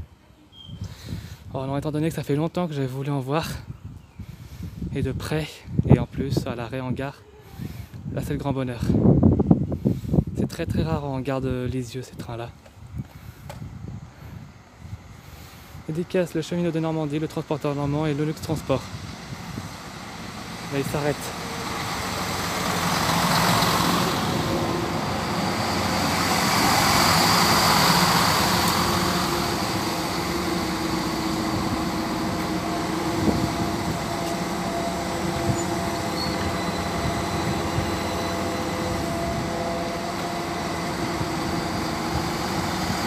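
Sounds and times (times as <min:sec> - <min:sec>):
diesel engines idling: 0:13.1 - 0:43.0
train wheels rolling: 0:17.8 - 0:43.0.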